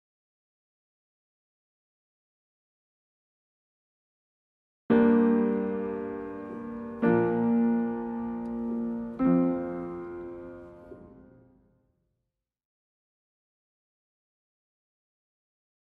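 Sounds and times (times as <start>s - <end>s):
piano chords ringing: 4.9s - 11.7s.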